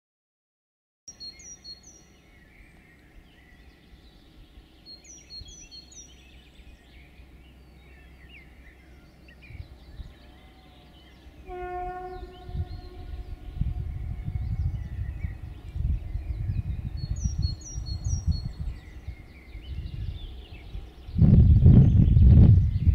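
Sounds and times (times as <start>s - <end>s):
bird chirping: 1.1s - 22.9s
locomotive horn: 11.4s - 14.3s.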